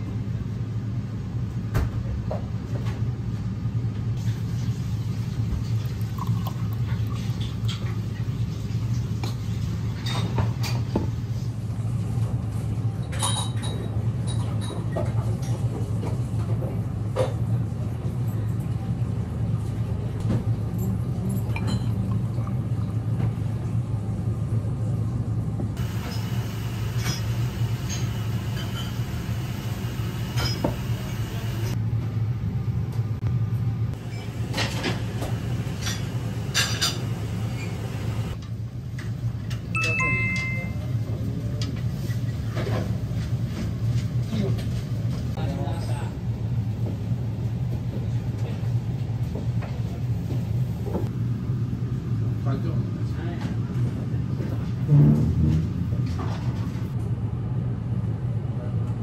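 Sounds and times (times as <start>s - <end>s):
low room hum: 0.0s - 59.0s
glasses and tableware clinking: 13.1s - 14.9s, 21.3s - 22.2s, 25.8s - 31.7s, 34.0s - 38.4s, 39.8s - 40.8s.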